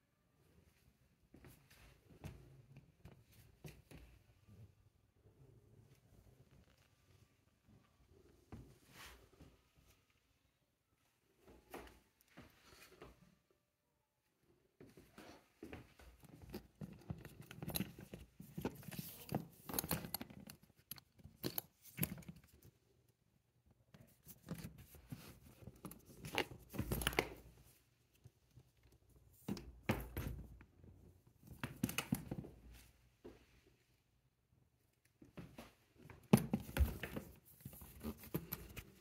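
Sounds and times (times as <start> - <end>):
handbag rustling and scraping: 16.2 - 22.4, 36.4 - 39.0.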